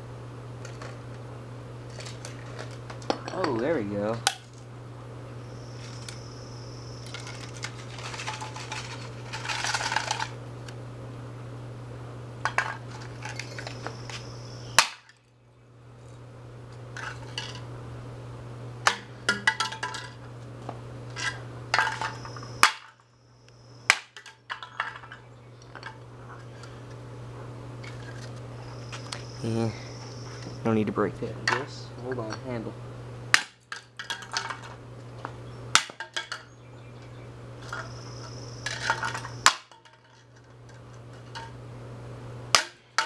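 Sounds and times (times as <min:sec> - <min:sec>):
steady low hum: 0:00.0 - 0:43.0
plastic pieces clattering on concrete: 0:01.9 - 0:03.4, 0:07.0 - 0:10.4, 0:12.4 - 0:13.9, 0:18.9 - 0:20.3, 0:21.1 - 0:23.0, 0:23.9 - 0:26.0, 0:33.4 - 0:34.8, 0:35.8 - 0:36.5, 0:38.6 - 0:41.5.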